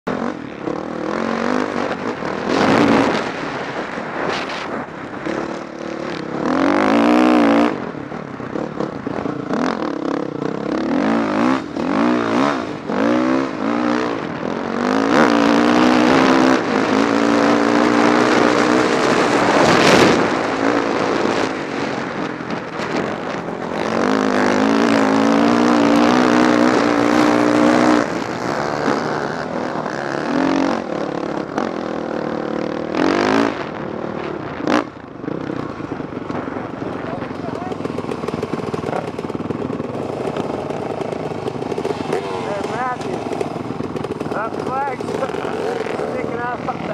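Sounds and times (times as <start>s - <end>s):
dirt bike engine revving: 0.1s - 46.9s.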